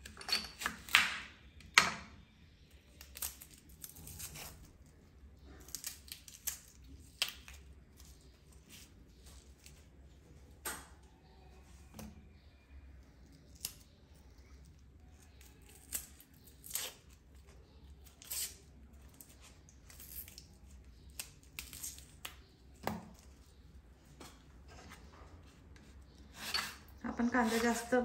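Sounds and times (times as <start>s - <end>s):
onion skin crackling tears: 2.9s - 8.9s, 13.3s - 23.3s.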